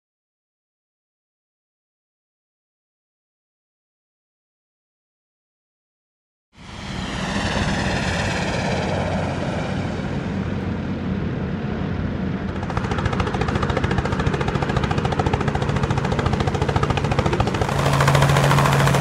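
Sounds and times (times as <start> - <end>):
propeller plane engine: 6.6 - 19.0
fast even pulsing: 12.5 - 19.0.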